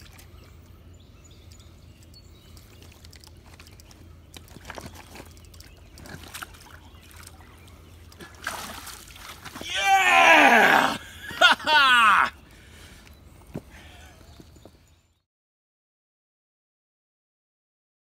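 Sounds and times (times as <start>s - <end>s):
water splashing: 4.6s - 10.1s.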